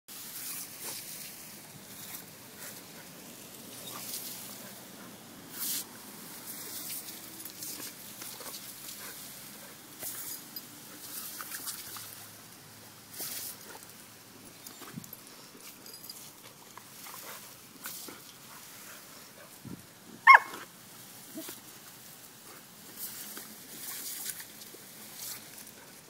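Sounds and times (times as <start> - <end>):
hose nozzle spraying water: 5.5 - 12.4
water splashes: 11.0 - 13.6.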